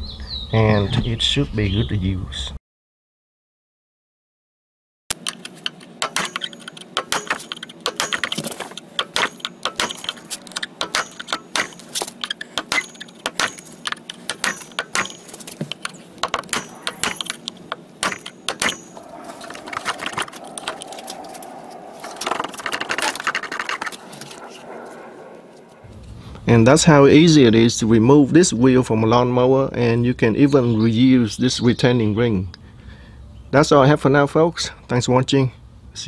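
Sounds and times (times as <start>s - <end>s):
screwdriver striking metal ring: 5.1s - 20.9s
wheel rubbing and scraping on axle: 5.2s - 26.1s.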